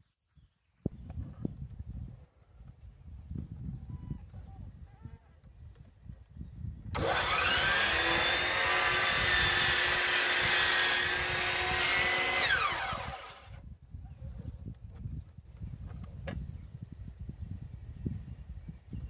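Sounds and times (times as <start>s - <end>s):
miter saw motor whine: 7.0s - 13.6s
saw blade cutting wood: 7.0s - 13.6s.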